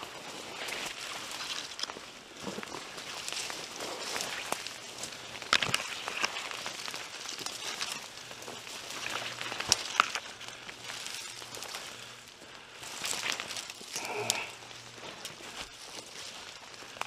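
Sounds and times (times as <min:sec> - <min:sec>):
footsteps crunching through dry leaves: 0:00.0 - 0:17.0
twigs scraping and cracking: 0:00.0 - 0:17.0.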